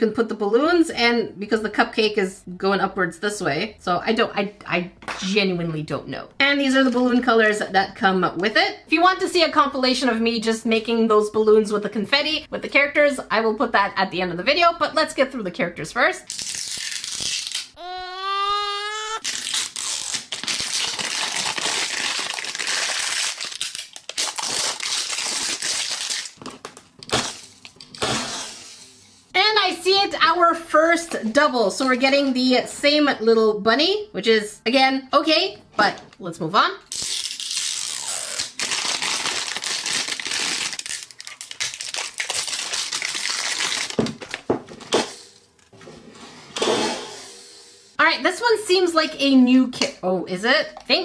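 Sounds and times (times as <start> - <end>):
plastic film tearing and crinkling: 16.3 - 17.8, 18.9 - 28.5, 36.9 - 44.5.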